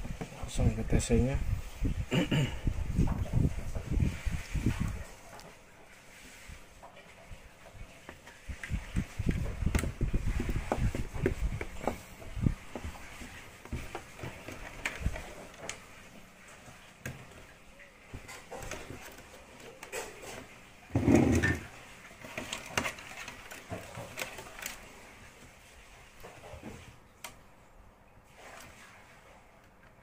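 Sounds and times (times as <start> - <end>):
wires and connectors rattling: 8.4 - 17.5, 18.1 - 25.1.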